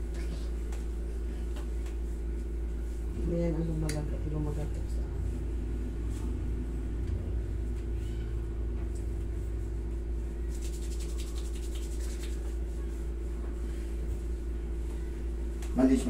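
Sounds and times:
steady low hum: 0.0 - 16.0
hands rubbing skin: 10.4 - 13.3.

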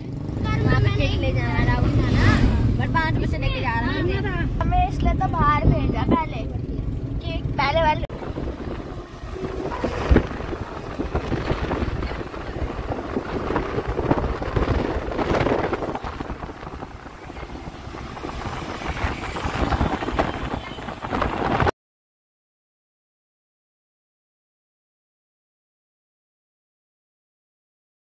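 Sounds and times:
road and engine noise: 0.0 - 21.8
wind buffeting the microphone: 0.4 - 21.7.

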